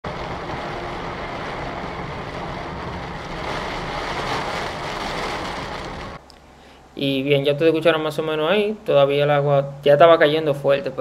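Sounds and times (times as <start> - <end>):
heavy rain on car roof: 0.0 - 6.2.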